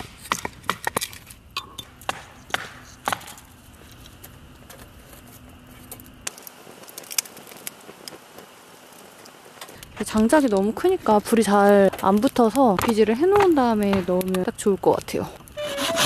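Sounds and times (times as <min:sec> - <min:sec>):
hatchet chopping wood: 0:00.0 - 0:01.2, 0:02.0 - 0:03.4, 0:12.6 - 0:14.3
wood fire crackling: 0:00.0 - 0:16.0.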